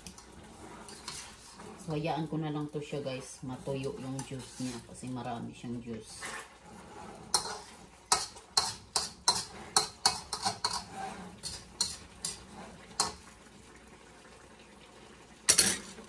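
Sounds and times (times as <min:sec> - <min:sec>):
spatula scraping metal wok: 0:00.0 - 0:02.2, 0:02.9 - 0:13.2.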